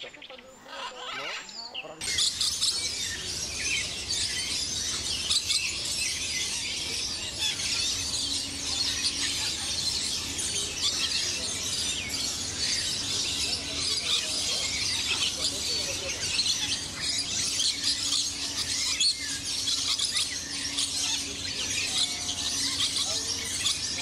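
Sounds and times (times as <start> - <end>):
many birds chattering: 0.0 - 24.0.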